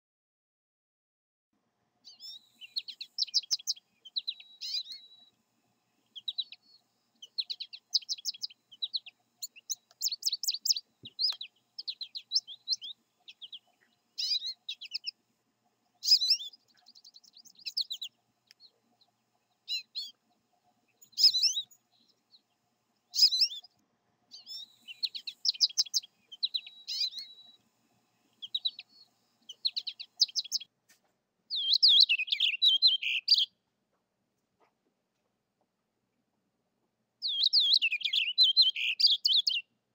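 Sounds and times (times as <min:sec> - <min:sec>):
bird twittering song: 0:02.0 - 0:05.4, 0:06.0 - 0:30.7, 0:31.5 - 0:33.6, 0:37.2 - 0:39.7.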